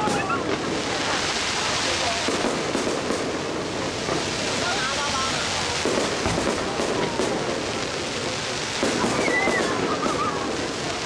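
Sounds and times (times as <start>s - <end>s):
fireworks booms: 0.0s - 11.0s
fireworks crackling: 0.0s - 11.0s.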